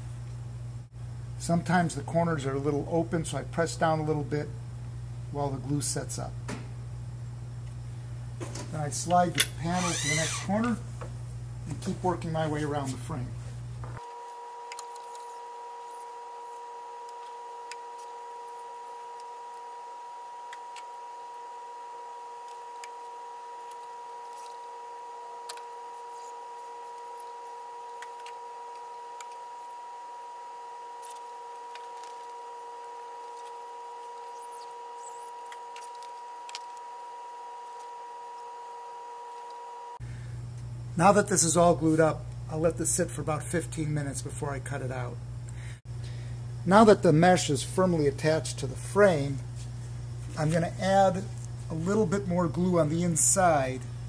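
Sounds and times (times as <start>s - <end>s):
two-pitch steady hum: 0.0s - 54.0s.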